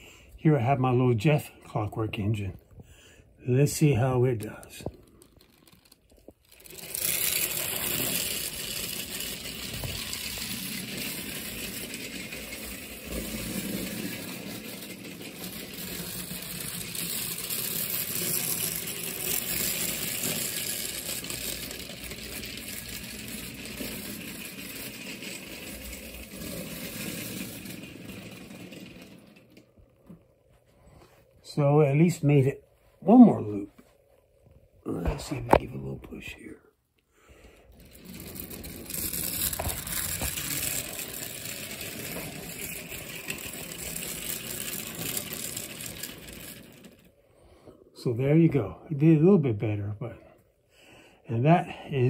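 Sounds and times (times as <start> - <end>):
toy train wheels rattling on rails: 3.7 - 30.0, 37.5 - 47.2
clockwork motor whirring: 4.5 - 29.7, 37.6 - 47.2.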